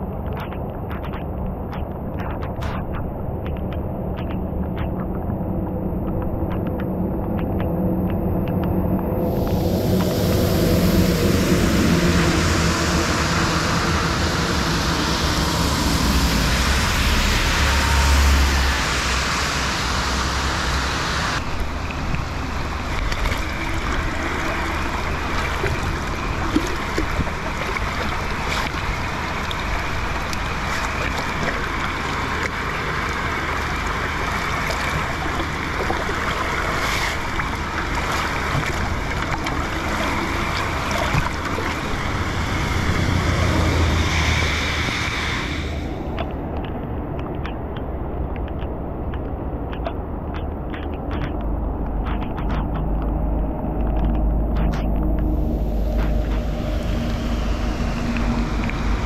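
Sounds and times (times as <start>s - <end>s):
rainwater running in gutter: 0.0s - 44.8s, 49.8s - 59.0s
low rumble: 0.0s - 59.0s
steady rain on a street: 9.8s - 23.0s, 27.8s - 38.8s.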